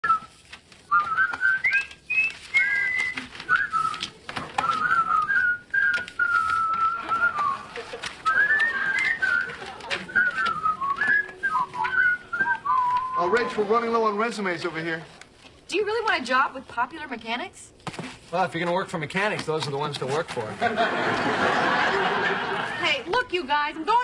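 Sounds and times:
paper rustling: 0.0s - 17.1s, 17.7s - 23.3s
person whistling a tune: 0.9s - 13.5s.

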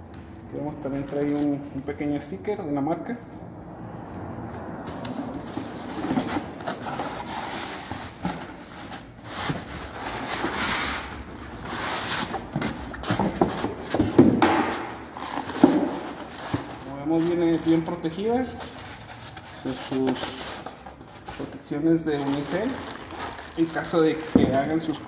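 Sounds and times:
cardboard box scraping: 4.9s - 14.2s
plastic wrap rustling: 5.0s - 25.0s.

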